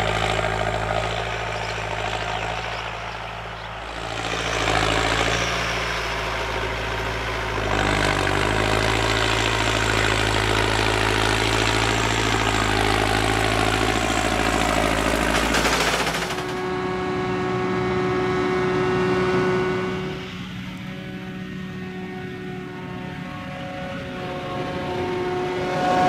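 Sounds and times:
forage harvester high whine: 0.0s - 26.0s
tractor engine under load: 0.0s - 26.0s.

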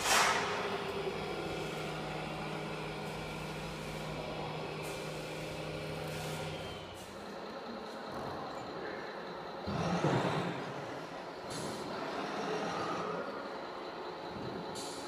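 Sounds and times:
air-brake hiss: 0.0s - 0.8s
simulated diesel engine: 0.0s - 15.0s.

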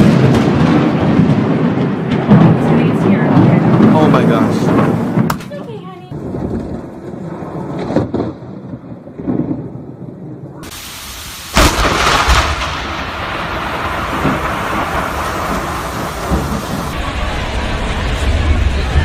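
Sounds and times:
soft thunder thuds: 0.0s - 19.0s
thunder crack and rumble: 0.0s - 19.0s
heavy rain hissing: 10.6s - 19.0s.

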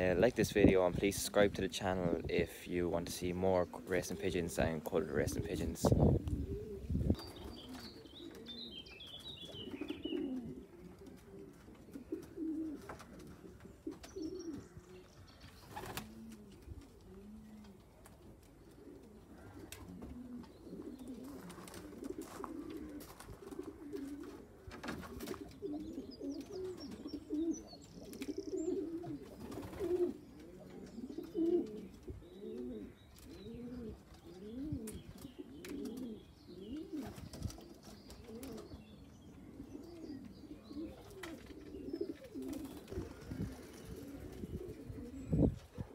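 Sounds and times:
pigeons cooing: 0.0s - 45.9s
small bird chirping: 6.6s - 10.5s, 14.0s - 16.0s.

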